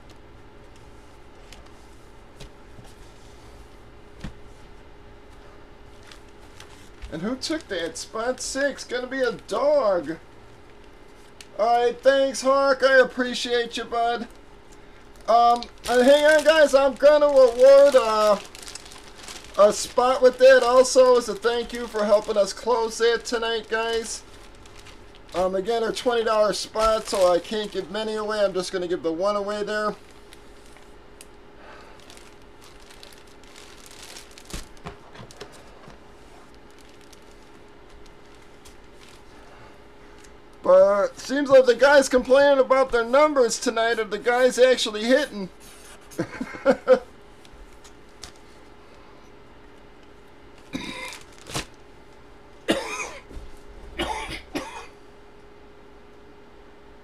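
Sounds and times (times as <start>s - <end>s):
faint steady hum: 0.0s - 57.0s
packaging crinkling: 5.4s - 9.5s, 13.8s - 41.3s, 47.4s - 48.7s, 50.5s - 52.3s
man coughing: 46.2s - 47.0s, 50.7s - 51.2s, 52.7s - 53.3s, 54.0s - 55.0s.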